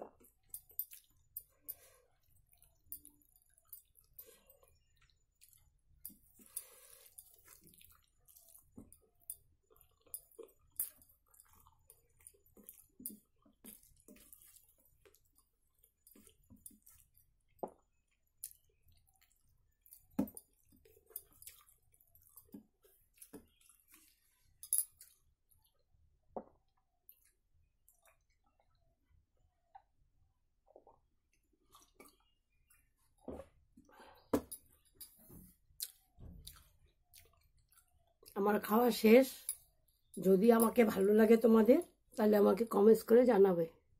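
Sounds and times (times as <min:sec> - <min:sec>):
chewing and mouth smacking: 0:00.1 - 0:25.8, 0:26.7 - 0:28.9, 0:30.6 - 0:33.6, 0:34.6 - 0:38.4.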